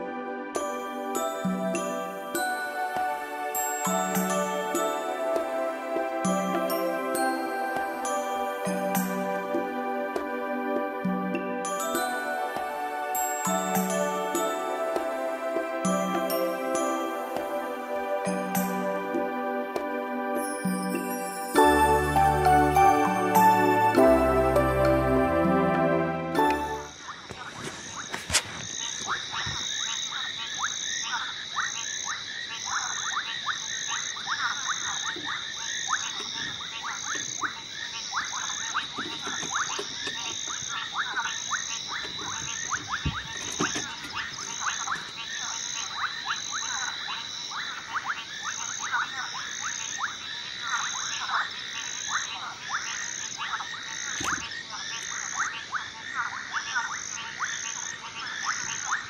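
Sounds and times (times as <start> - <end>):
frogs clicking: 26.9 - 59.0.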